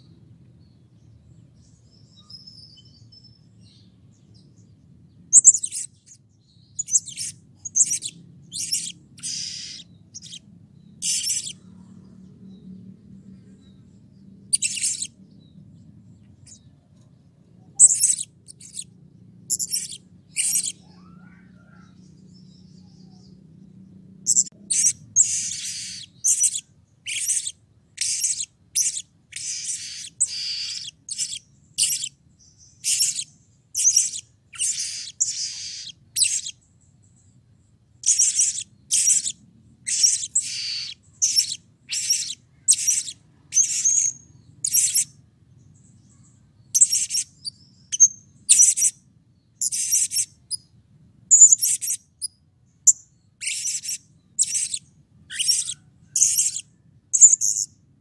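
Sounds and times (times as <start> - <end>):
faint low hum: 0.0 - 58.0
parrot chirping: 5.3 - 6.1, 6.8 - 11.6, 14.5 - 15.2, 17.7 - 18.9, 19.5 - 21.9, 24.3 - 32.2, 32.8 - 36.6, 38.0 - 45.2, 46.8 - 49.0, 49.6 - 50.6, 51.3 - 57.7.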